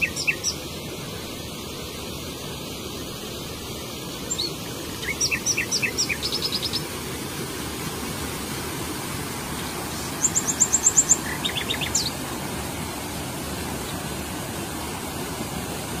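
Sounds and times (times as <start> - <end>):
small songbird singing: 0.0 - 0.6, 4.3 - 6.9, 9.6 - 12.2
stream cascading over rocks: 0.0 - 16.0.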